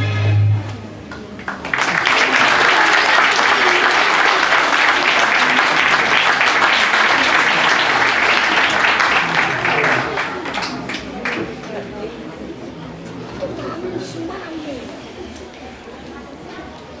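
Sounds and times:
music held low note: 0:00.0 - 0:01.0
large audience applauding: 0:01.1 - 0:11.6.

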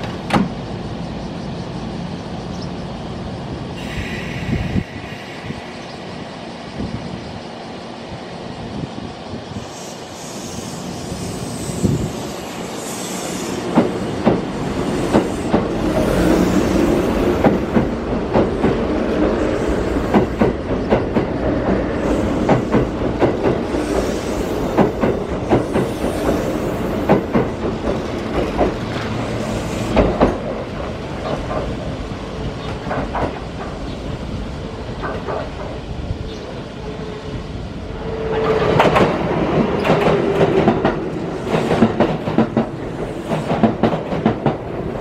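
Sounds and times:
train running rumble: 0:00.0 - 0:45.0
train wheels clacking over rail joints: 0:13.3 - 0:31.9, 0:32.6 - 0:34.0, 0:35.0 - 0:35.8, 0:38.3 - 0:45.0.

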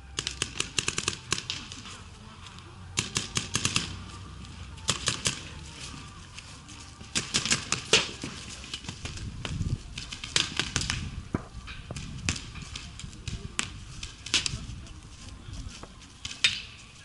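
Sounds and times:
paintball markers firing: 0:00.1 - 0:01.9, 0:03.0 - 0:04.1, 0:04.8 - 0:05.6, 0:07.0 - 0:14.6.

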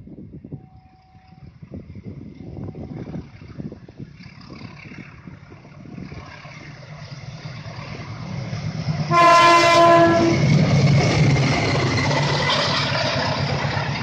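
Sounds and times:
locomotive engine rumble: 0:00.0 - 0:14.0
locomotive horn blast: 0:09.1 - 0:10.6.

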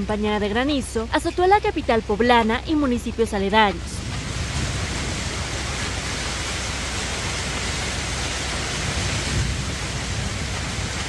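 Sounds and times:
low rumble: 0:00.2 - 0:11.0
heavy rain and hail: 0:03.1 - 0:11.0.

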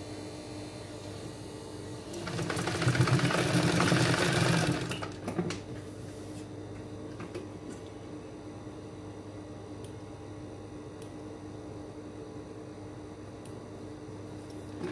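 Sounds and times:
sewing machine stitching: 0:02.2 - 0:05.2.

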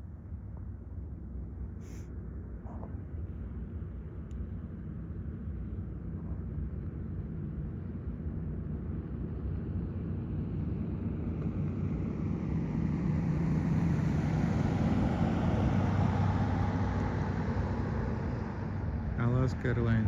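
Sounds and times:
distant jet engines rumbling: 0:11.0 - 0:20.0.

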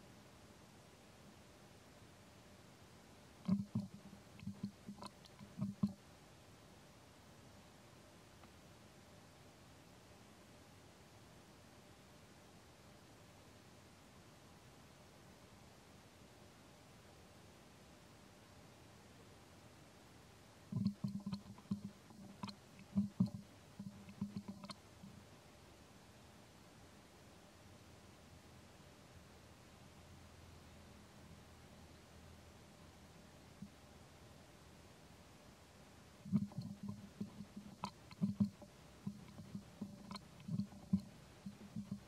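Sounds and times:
baby monkey suckling: 0:03.4 - 0:06.0, 0:20.7 - 0:25.2, 0:36.2 - 0:42.0
wet smacking and clicking: 0:03.4 - 0:06.0, 0:20.8 - 0:24.8, 0:36.3 - 0:42.0.

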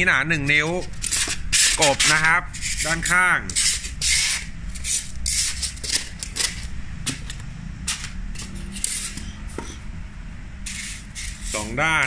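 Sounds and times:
foam and cardboard scraping: 0:10.6 - 0:12.0.

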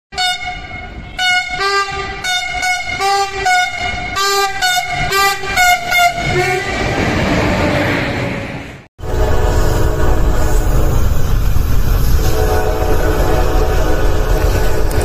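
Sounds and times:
locomotive horn short blasts: 0:00.1 - 0:06.8, 0:12.2 - 0:15.0
train rushing at speed: 0:00.4 - 0:15.0.

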